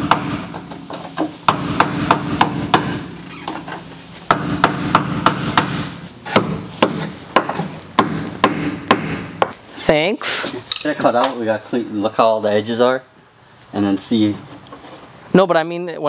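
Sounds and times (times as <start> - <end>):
hammer striking sheet steel: 0.0 - 3.1, 4.3 - 9.6.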